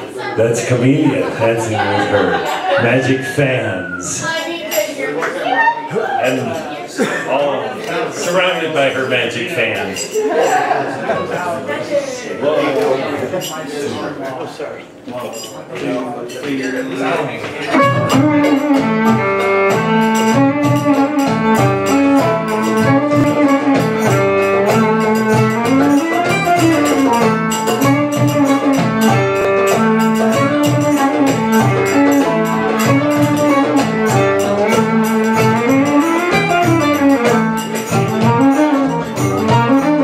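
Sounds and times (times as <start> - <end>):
violin melody with sliding notes: 0.8 - 4.3, 17.6 - 40.0
plucked strings: 17.5 - 40.0
steady drum beat: 17.7 - 40.0.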